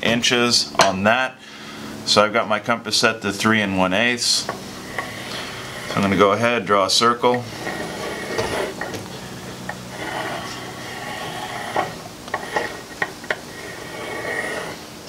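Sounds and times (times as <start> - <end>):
pencil scratching on wood: 7.7 - 8.9.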